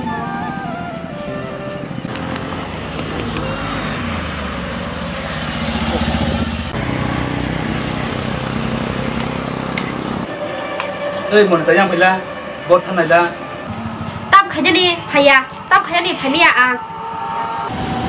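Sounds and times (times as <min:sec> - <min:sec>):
vehicle engine running: 0:01.9 - 0:10.7.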